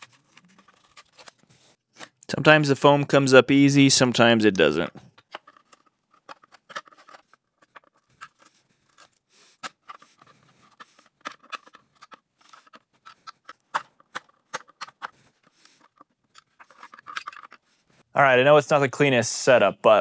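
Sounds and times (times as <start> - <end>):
screwdriver scraping plastic: 5.1 - 17.7.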